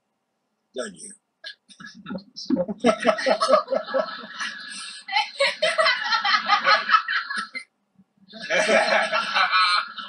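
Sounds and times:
people laughing: 0:01.7 - 0:07.6, 0:08.3 - 0:10.0.

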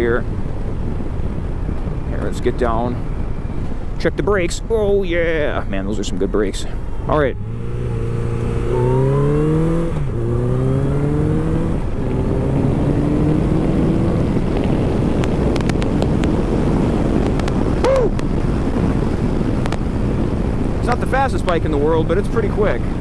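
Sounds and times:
wind rush: 0:00.0 - 0:23.0
motorcycle accelerating through gears: 0:07.1 - 0:17.8.

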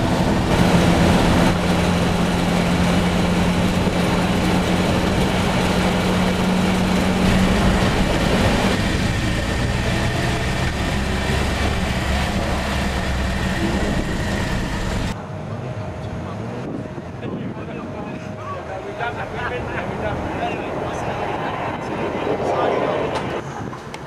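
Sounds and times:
truck engine heard from cab: 0:00.0 - 0:16.8
road noise: 0:00.0 - 0:24.0.

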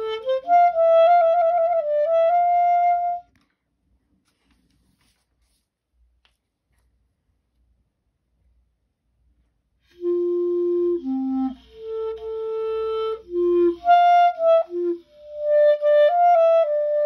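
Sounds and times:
solo oboe playing: 0:00.0 - 0:03.3, 0:09.9 - 0:17.0.

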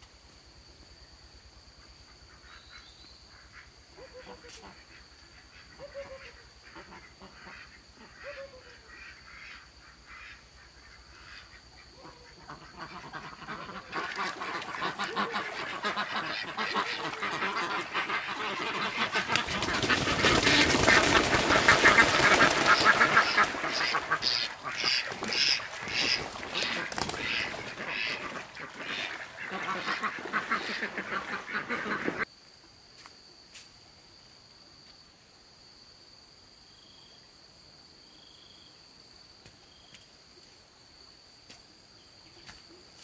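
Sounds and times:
ducks quacking: 0:03.4 - 0:32.3
water splashing: 0:13.5 - 0:32.2.

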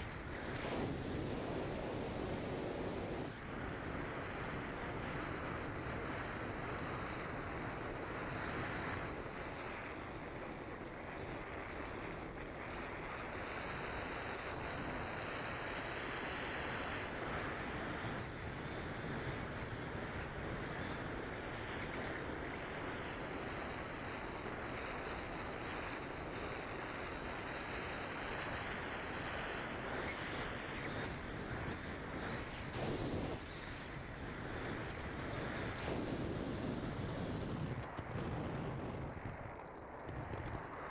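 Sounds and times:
rush of airflow: 0:00.0 - 0:03.8, 0:31.6 - 0:39.5
faint high whine: 0:00.0 - 0:40.9.

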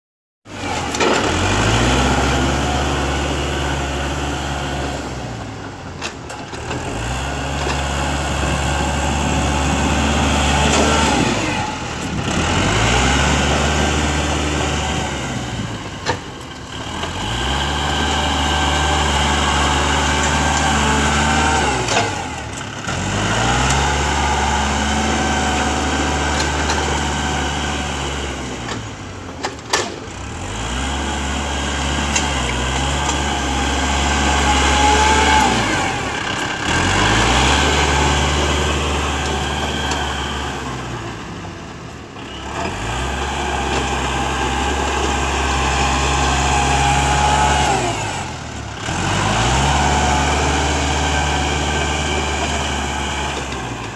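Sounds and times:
tractor diesel engine revving: 0:00.5 - 0:53.9.

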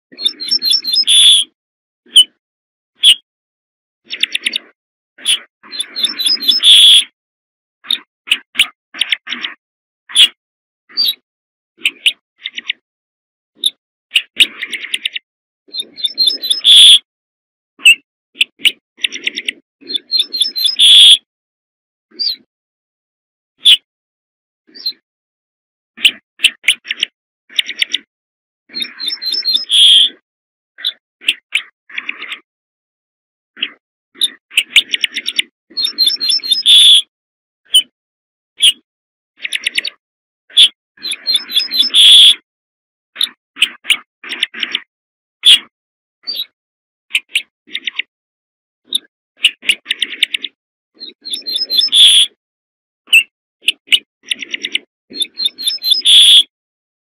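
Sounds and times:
bird singing: 0:00.1 - 0:01.6, 0:03.0 - 0:03.3, 0:04.0 - 0:07.1, 0:10.9 - 0:11.2, 0:11.8 - 0:12.8, 0:13.6 - 0:17.1, 0:17.8 - 0:21.3, 0:24.7 - 0:25.0, 0:28.7 - 0:30.2, 0:30.8 - 0:32.4, 0:33.6 - 0:37.1, 0:39.4 - 0:42.4, 0:48.9 - 0:52.3, 0:53.1 - 0:56.5.

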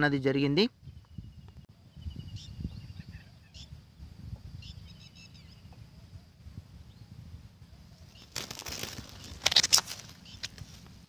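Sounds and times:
close rustling and crackling: 0:08.1 - 0:11.0.

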